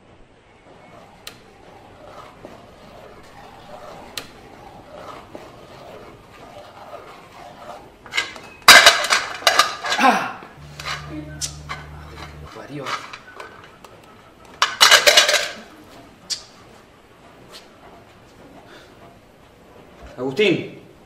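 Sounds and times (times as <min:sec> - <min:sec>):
spoon stirring in metal pot: 0:00.6 - 0:09.9, 0:10.6 - 0:13.8.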